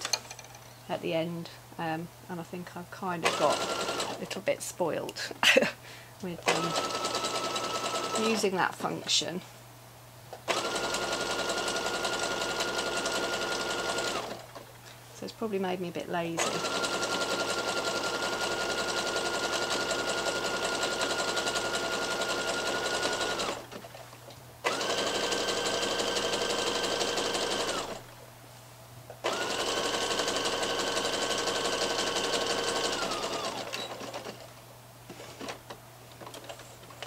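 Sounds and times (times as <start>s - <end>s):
sewing machine stitching: 3.2s - 4.2s, 6.4s - 8.4s, 10.5s - 14.6s, 16.4s - 24.0s, 24.6s - 28.1s, 29.2s - 34.5s.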